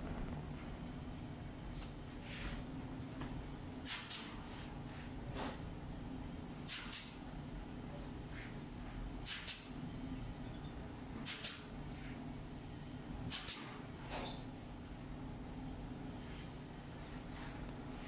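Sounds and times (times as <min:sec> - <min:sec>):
faint low hum: 0:00.0 - 0:03.6
pneumatic clip gun snaps: 0:03.8 - 0:04.4, 0:06.6 - 0:07.2, 0:09.2 - 0:09.8, 0:11.2 - 0:11.7, 0:13.3 - 0:13.8.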